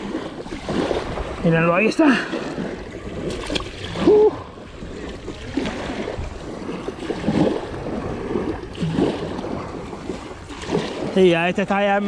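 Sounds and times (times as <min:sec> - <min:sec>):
small waves washing up ramp: 0:00.0 - 0:12.0
fish flopping and splashing: 0:02.2 - 0:11.2
person exclaiming: 0:04.0 - 0:04.5.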